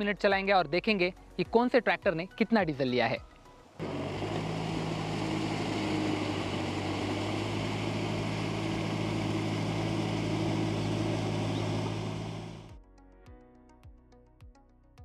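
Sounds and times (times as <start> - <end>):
tractor diesel engine under load: 3.8 - 12.7.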